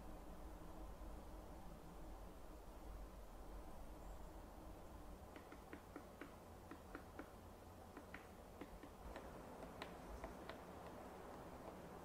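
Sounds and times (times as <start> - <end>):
faint sharp ticks and clicks: 5.3 - 12.0.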